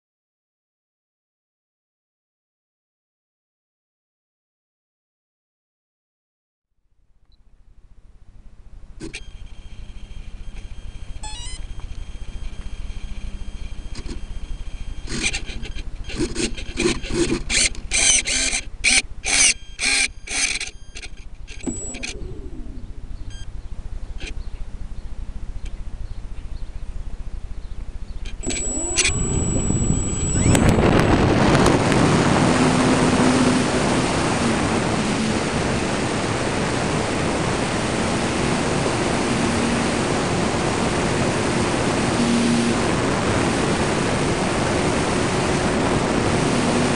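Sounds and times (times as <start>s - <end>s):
short noisy bursts: 9.0s - 23.5s, 28.3s - 46.9s
electric motor whine: 9.0s - 24.4s, 28.3s - 46.9s
propeller and wind rush: 9.0s - 27.2s, 27.8s - 46.9s.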